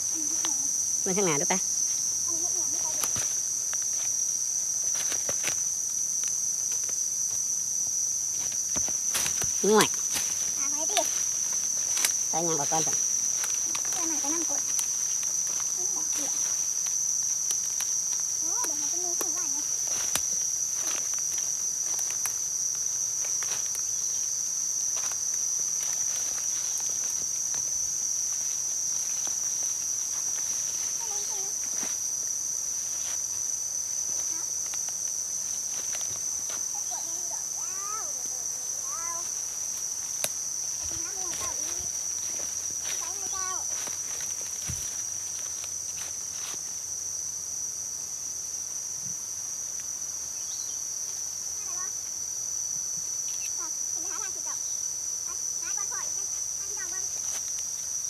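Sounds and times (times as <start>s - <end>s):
insects droning: 0.0s - 58.0s
footsteps through dry leaves: 8.4s - 18.4s, 19.6s - 36.7s, 39.2s - 46.7s.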